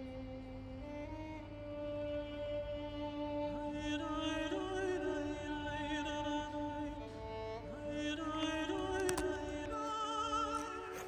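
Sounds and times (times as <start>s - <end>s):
slow string-like melody: 0.0s - 11.0s
short clicks: 8.8s - 9.6s.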